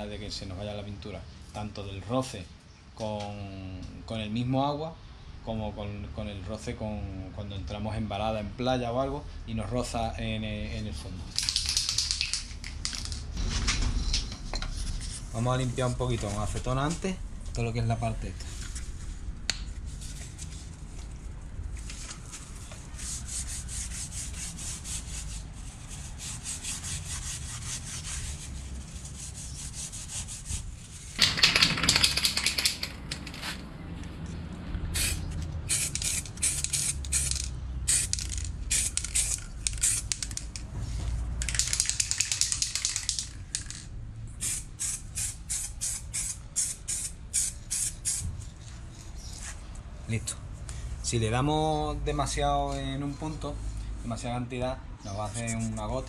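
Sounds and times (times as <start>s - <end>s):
aerosol paint spraying: 34.9s - 40.5s, 44.4s - 48.3s.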